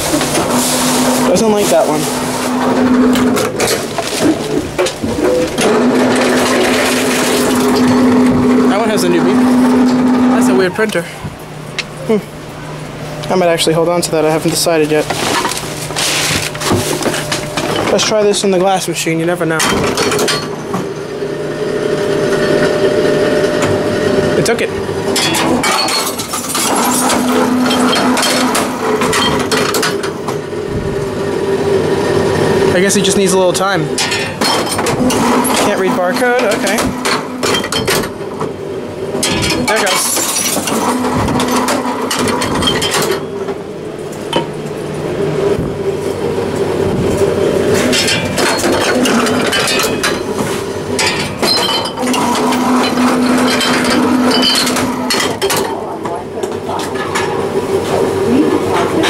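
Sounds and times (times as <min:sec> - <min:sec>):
containers clinking and clattering: 0:00.0 - 0:10.5, 0:24.5 - 0:30.4, 0:47.7 - 0:59.0
machine hum: 0:00.0 - 0:59.0
clattering knocks and clinks: 0:19.6 - 0:20.8, 0:25.1 - 0:30.4, 0:34.0 - 0:38.2, 0:39.2 - 0:43.6, 0:47.7 - 0:56.2.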